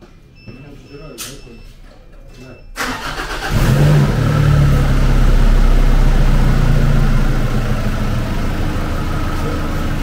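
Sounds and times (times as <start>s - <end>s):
car engine idling: 2.8s - 10.0s.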